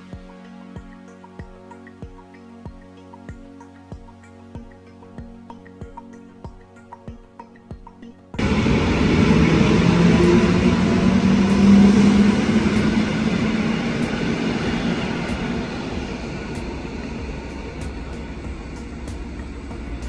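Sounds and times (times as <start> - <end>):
electric train passing: 8.4 - 20.0.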